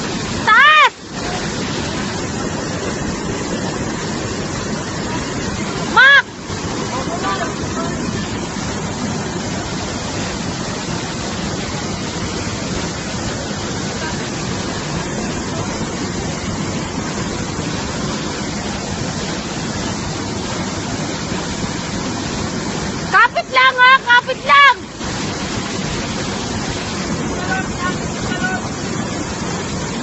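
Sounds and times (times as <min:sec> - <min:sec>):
torrent of water rushing: 0:00.0 - 0:30.0.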